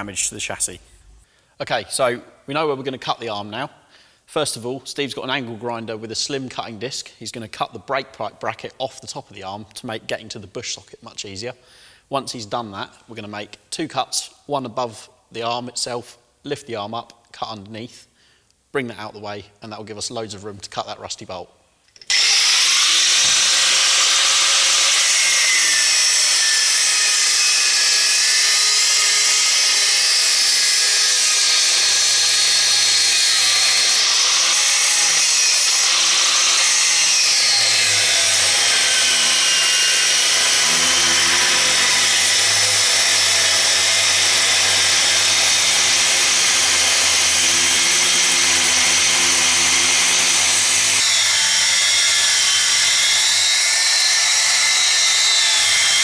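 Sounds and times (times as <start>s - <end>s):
angle grinder cutting steel: 22.0s - 56.0s.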